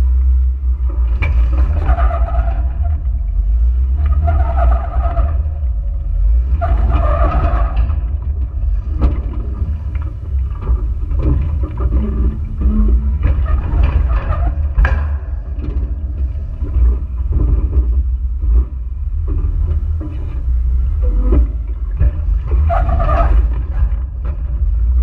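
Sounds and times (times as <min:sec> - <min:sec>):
vehicle engine rumble: 0:00.0 - 0:25.0.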